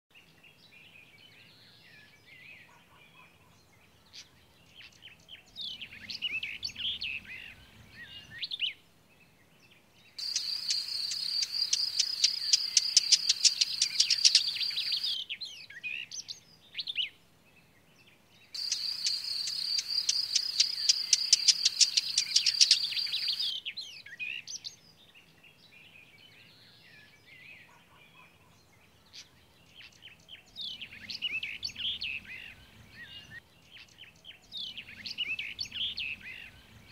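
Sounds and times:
birds twittering: 0.5 - 36.9
rapid high-pitched chirping: 10.2 - 15.2, 18.6 - 23.5.

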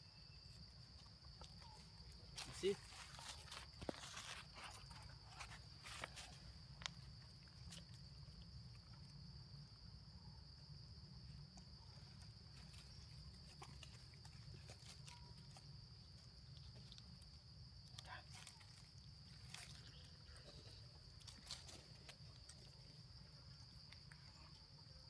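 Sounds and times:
clicks and rustles in dry leaves: 1.8 - 6.6, 18.0 - 22.8.

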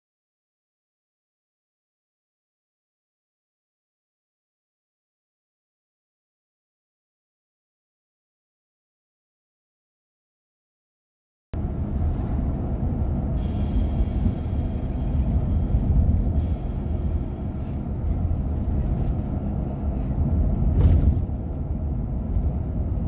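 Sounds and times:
car road and engine rumble: 11.6 - 23.0.

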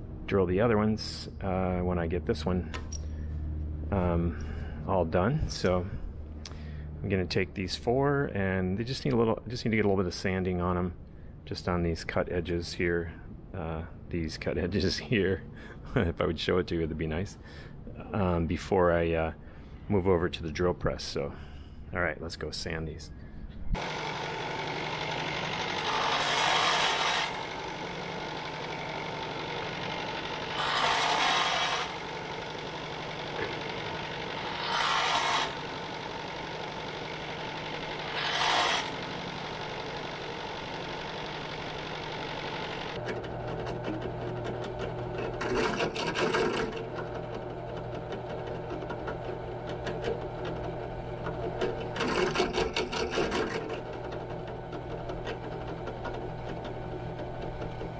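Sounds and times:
belt sander running: 23.8 - 57.9
drill press running: 23.8 - 57.9.

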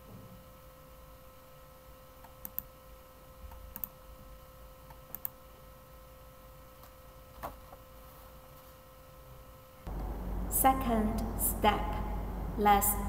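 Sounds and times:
faint electrical hum: 0.0 - 13.0
computer mouse clicking: 2.2 - 2.7, 3.5 - 4.0, 4.9 - 5.4.

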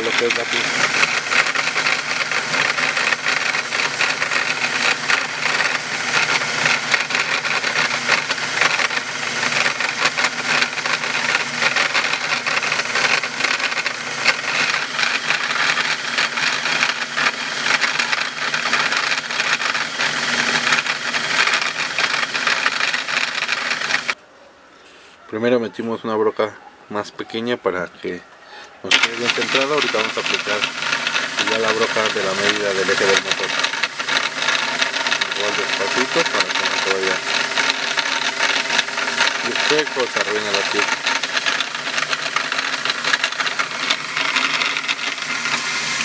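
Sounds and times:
drill press buzzing: 0.0 - 24.2, 28.9 - 46.0
rattling chatter: 28.9 - 45.1.

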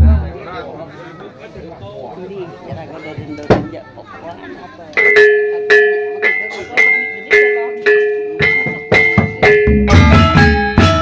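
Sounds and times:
drums: 0.0 - 0.5, 2.6 - 3.9, 5.0 - 11.0
metallophone ringing notes: 4.9 - 11.0.

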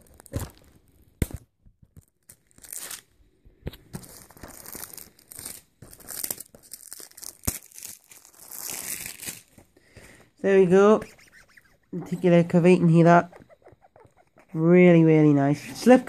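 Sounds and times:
plastic wrap crinkling and tearing: 0.0 - 1.4, 2.0 - 3.2, 3.9 - 9.8.

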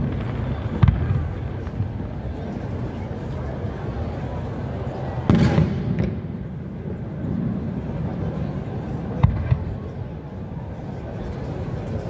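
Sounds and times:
firework crack: 0.0 - 3.3, 4.9 - 10.1
firework sharp bangs: 5.2 - 7.7
firework boom rumbling: 5.3 - 6.6.

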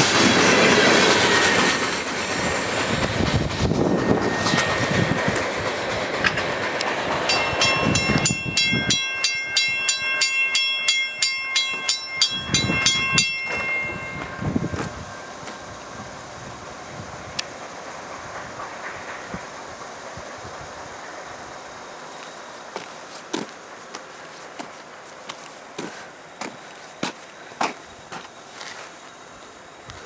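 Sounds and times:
railroad crossing bell ringing: 0.0 - 16.6
train wheels clacking and rumbling: 0.0 - 28.4.

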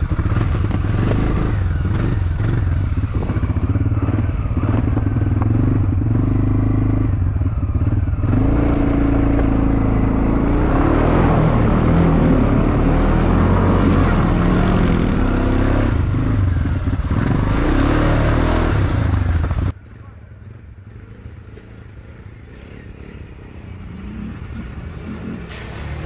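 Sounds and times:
quad bike engine revving: 0.0 - 19.8
mud and water splashing: 24.4 - 26.0.

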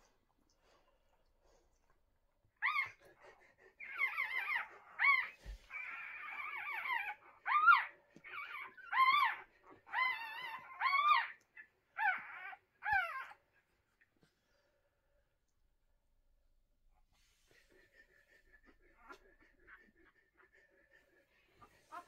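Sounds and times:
puppies whining: 2.6 - 3.1, 3.7 - 13.4.

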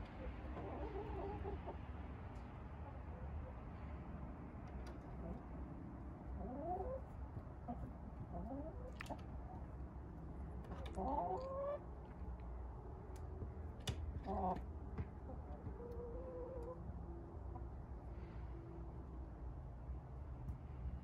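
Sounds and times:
hens chattering: 0.2 - 1.9, 6.3 - 9.7, 10.5 - 12.0.

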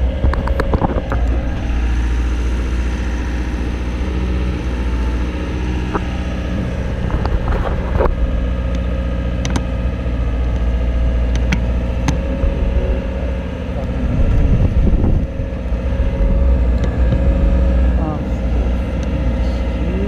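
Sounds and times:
boom lift engine running: 0.0 - 20.0
steady whine: 0.0 - 20.0
sharp clicks: 9.4 - 9.7.

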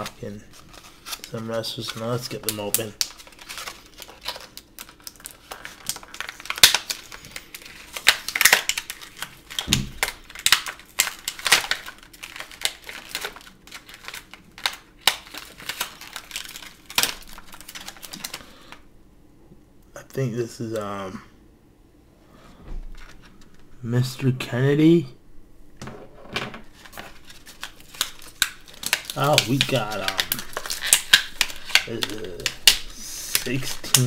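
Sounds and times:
plastic packaging crinkling: 0.0 - 18.8, 26.7 - 34.0.

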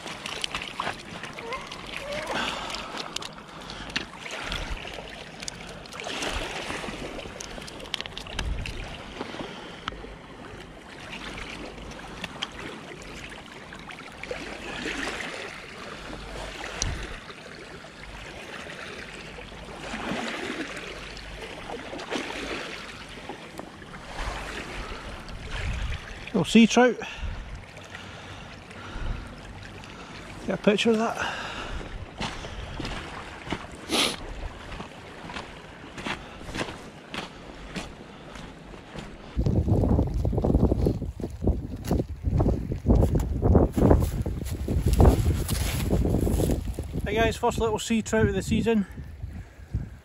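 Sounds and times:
waves lapping on pebble shore: 0.0 - 9.8, 10.5 - 27.1, 29.9 - 41.3, 43.7 - 47.3
wind rumbling on microphone: 6.3 - 9.4, 24.0 - 26.2, 31.5 - 35.4, 39.0 - 50.0.

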